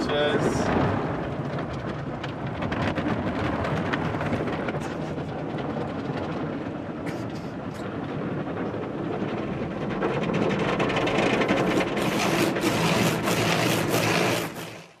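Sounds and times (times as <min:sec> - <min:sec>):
car wash water spray: 0:11.6 - 0:15.0.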